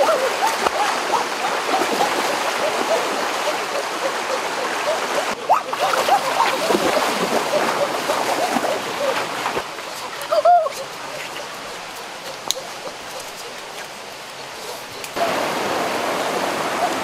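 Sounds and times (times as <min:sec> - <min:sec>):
people splashing through stream: 0:00.0 - 0:13.6
stream rushing: 0:00.0 - 0:17.0.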